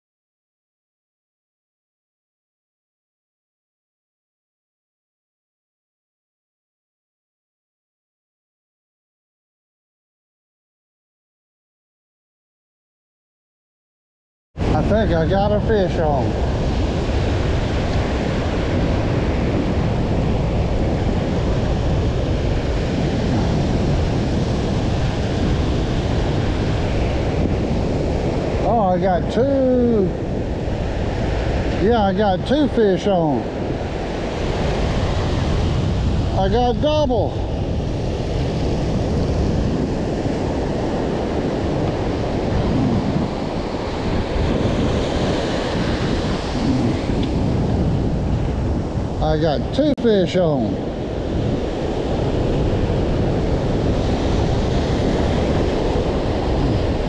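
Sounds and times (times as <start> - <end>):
ocean surf breaking: 14.6 - 57.0
wind buffeting microphone: 14.6 - 57.0.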